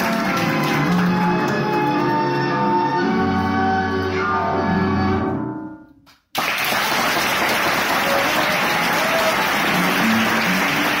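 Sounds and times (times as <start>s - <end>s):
audience applause: 0.0s - 2.0s, 6.3s - 11.0s
tango orchestra music: 0.0s - 5.8s.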